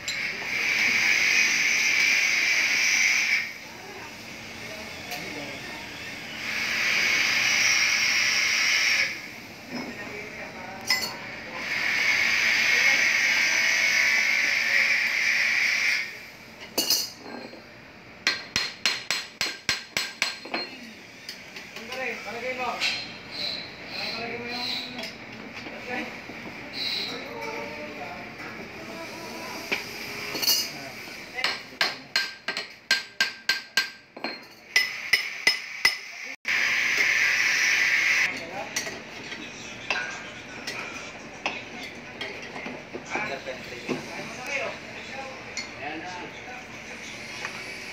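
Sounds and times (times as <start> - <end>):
hammer striking metal: 18.2 - 20.7, 31.4 - 36.1.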